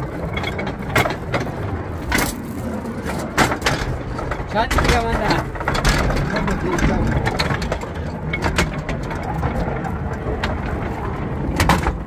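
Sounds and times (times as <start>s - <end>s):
low mechanical rumble: 0.0s - 12.0s
clicks and knocks: 3.0s - 10.8s.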